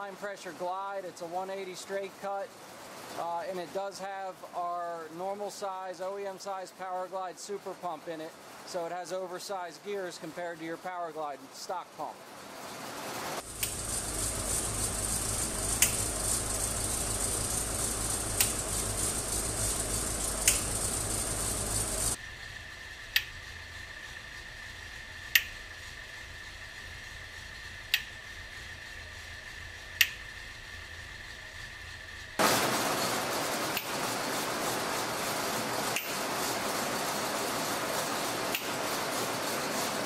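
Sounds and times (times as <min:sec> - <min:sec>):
faint steady whine: 0:00.0 - 0:40.0
transmission hiss and hum: 0:00.0 - 0:40.0
solenoid clicking: 0:20.4 - 0:20.8.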